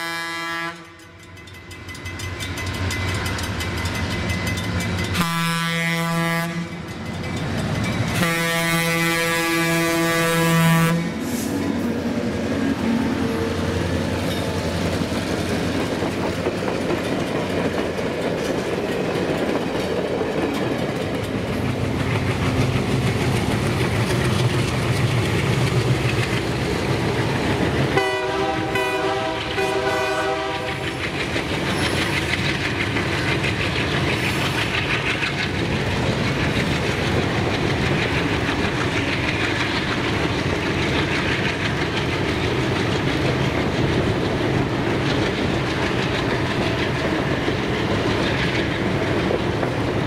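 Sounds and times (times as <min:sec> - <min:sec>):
train horn blasts: 0:00.0 - 0:01.2, 0:05.1 - 0:06.8, 0:08.2 - 0:11.4, 0:27.9 - 0:30.9
rumble of train passing: 0:00.0 - 0:50.0.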